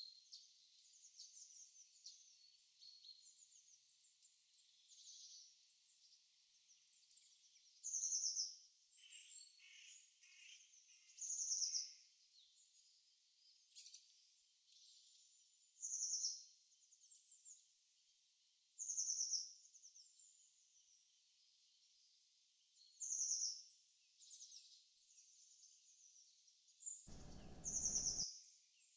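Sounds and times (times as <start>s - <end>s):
soft bird chirps: 27.1s - 28.2s
songbirds singing trilled phrases: 27.1s - 28.2s.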